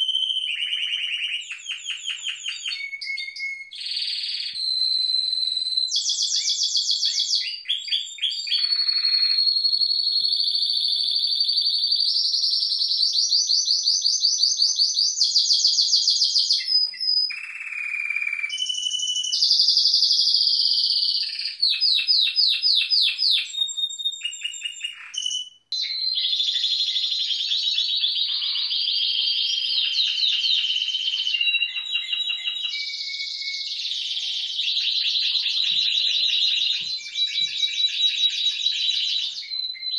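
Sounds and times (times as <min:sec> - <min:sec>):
canaries singing trills: 0:00.0 - 0:39.9.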